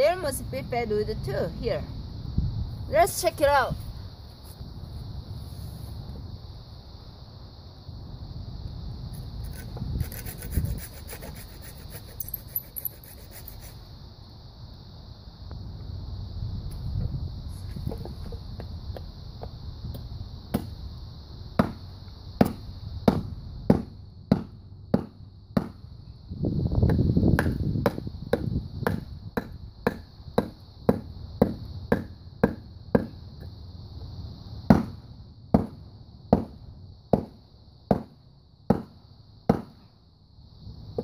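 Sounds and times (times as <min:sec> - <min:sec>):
hatchet chopping wood: 0:21.6 - 0:21.8, 0:22.4 - 0:25.8, 0:26.8 - 0:33.2, 0:34.7 - 0:38.1, 0:38.7 - 0:38.9, 0:39.5 - 0:39.8.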